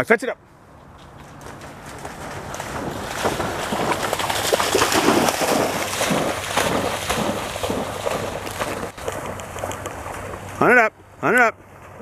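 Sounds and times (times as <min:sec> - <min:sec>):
dog splashing through water: 0:01.2 - 0:10.6.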